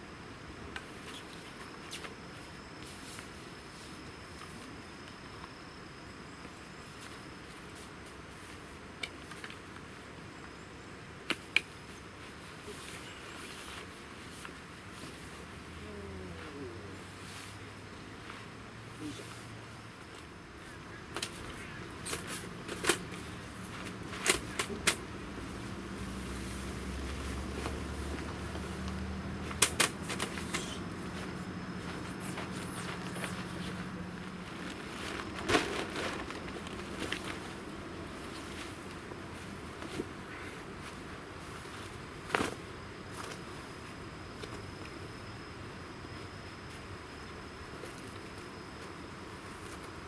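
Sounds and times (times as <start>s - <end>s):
steady background hiss: 0.0s - 50.0s
steady low hum: 0.0s - 50.0s
sharp snaps: 29.5s - 30.8s.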